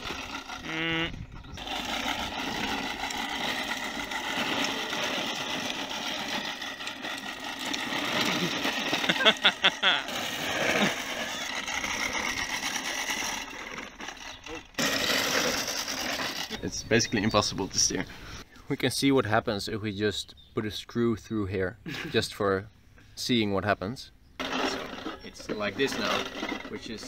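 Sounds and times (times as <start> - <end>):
reel mower blades whirring: 0.0 - 18.4, 24.4 - 27.0.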